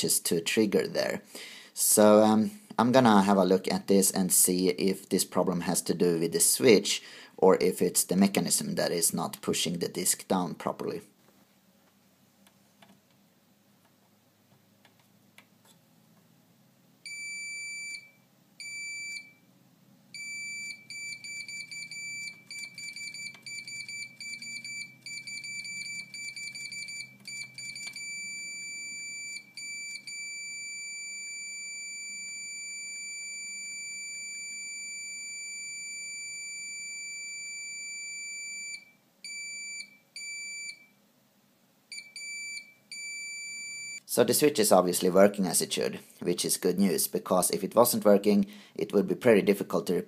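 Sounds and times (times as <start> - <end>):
multimeter continuity beeps: 17.1 - 19.4, 20.2 - 40.9, 41.9 - 44.0.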